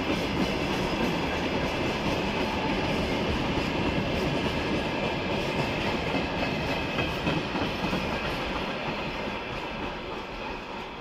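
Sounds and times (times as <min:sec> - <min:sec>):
freight train rumble: 0:00.0 - 0:11.0.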